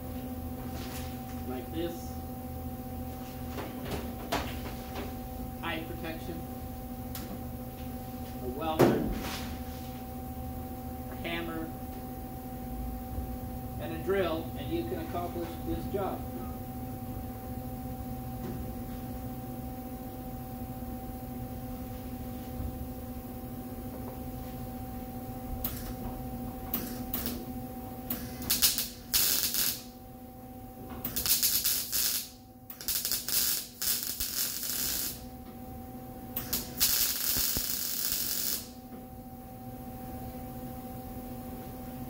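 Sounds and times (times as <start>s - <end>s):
steady low hum: 0.0s - 42.0s
welder arc crackling: 26.7s - 27.5s, 28.1s - 30.0s, 31.0s - 35.3s, 36.4s - 38.8s.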